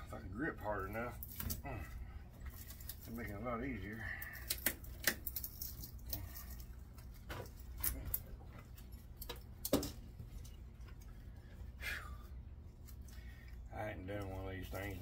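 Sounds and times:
faint low hum: 0.0s - 15.0s
hand tools clicking and tapping: 4.4s - 6.3s.

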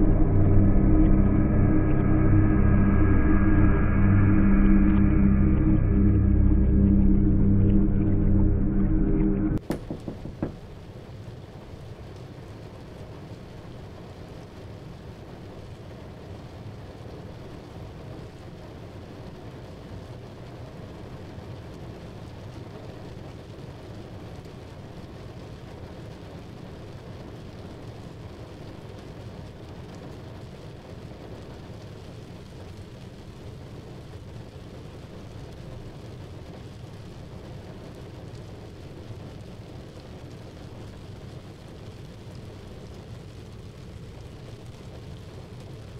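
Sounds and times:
steady low rumbling: 0.0s - 11.0s.

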